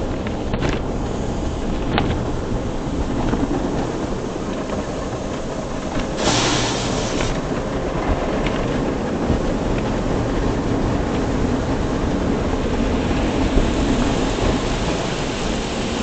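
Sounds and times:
hiss: 4.5 - 7.5, 12.9 - 16.0
car wash brushes rubbing: 6.0 - 7.4.

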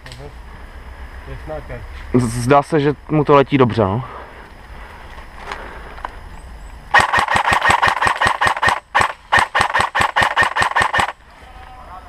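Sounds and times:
airsoft rifles firing full auto: 6.9 - 11.2.

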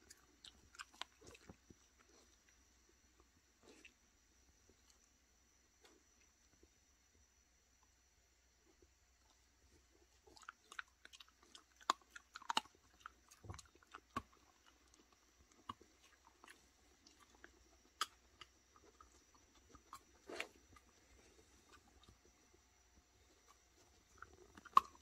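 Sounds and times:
dogs chewing crunchy treats: 9.9 - 22.5, 23.4 - 25.0.

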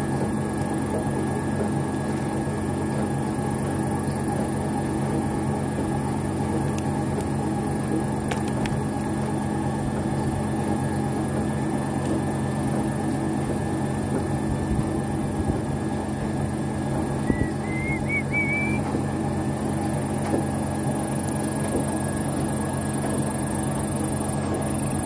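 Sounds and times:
pump motor humming: 0.0 - 25.0
whistled tune: 17.2 - 18.9.

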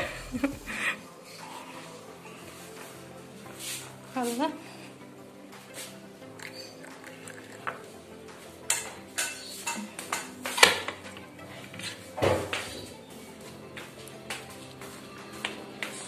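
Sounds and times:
kitchenware clattering on counter: 8.7 - 11.0.

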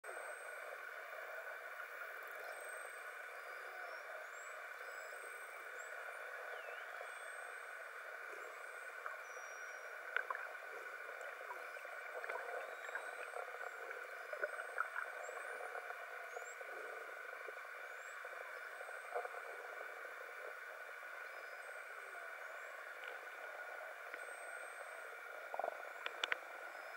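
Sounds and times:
underwater hum and hiss: 0.1 - 26.9
underwater clicks: 10.1 - 10.6, 25.5 - 26.5.

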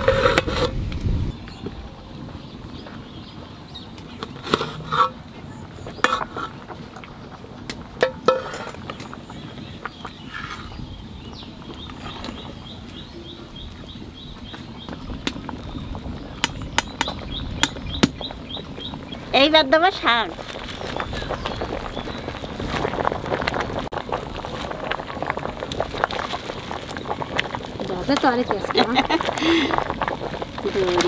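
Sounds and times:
metal pot and ladle clinking: 8.0 - 8.8.

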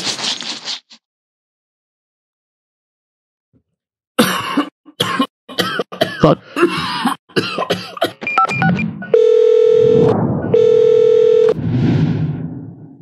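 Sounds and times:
man coughing: 4.2 - 8.2.

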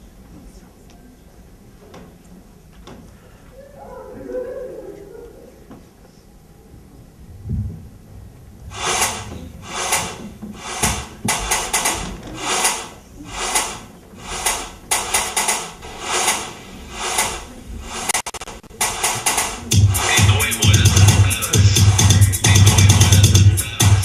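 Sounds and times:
low thump: 7.3 - 12.4
rhythmic scratchy swishing: 8.5 - 24.0
electronic music: 8.7 - 24.0.

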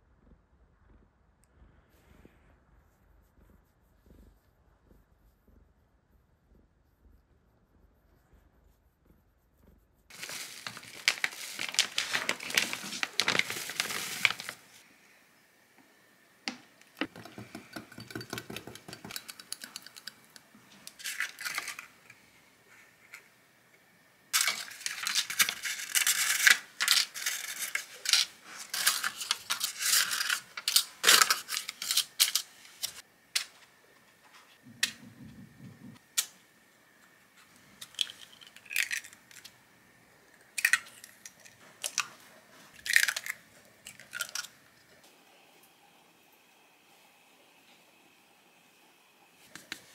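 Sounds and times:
kitchen rustling: 10.1 - 14.8, 16.5 - 23.4, 24.3 - 36.0
tapping and clinking: 17.1 - 20.2.

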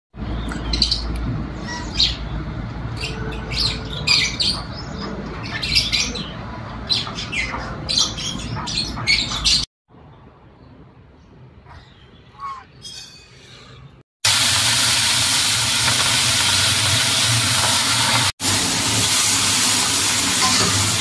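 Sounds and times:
birds squawking: 0.4 - 9.7, 11.7 - 13.9.

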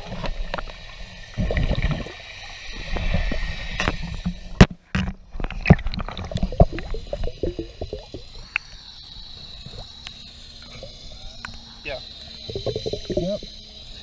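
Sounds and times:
water sloshing and gurgling: 0.0 - 8.7, 12.5 - 13.5
bubbles popping: 1.4 - 2.2, 5.7 - 8.3, 12.5 - 13.4.

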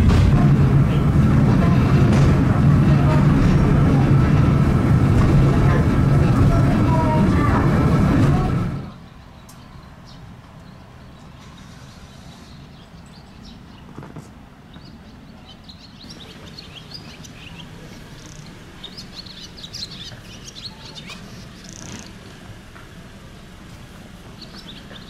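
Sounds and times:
low background hum: 0.0 - 25.0
small birds chirping: 6.2 - 22.5, 23.3 - 25.0.

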